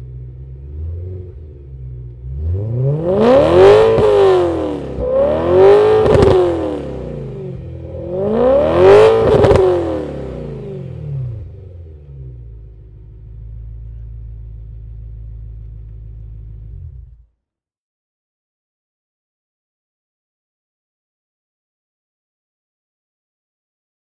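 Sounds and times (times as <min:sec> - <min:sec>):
car engine revving with crackle: 0:00.0 - 0:17.2
car engine burbling idle: 0:11.4 - 0:17.2.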